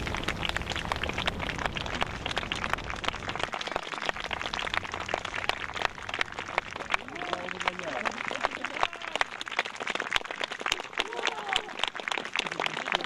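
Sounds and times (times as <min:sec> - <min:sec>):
low rumble: 0:00.0 - 0:09.4
dense crackling clicks: 0:00.0 - 0:12.9.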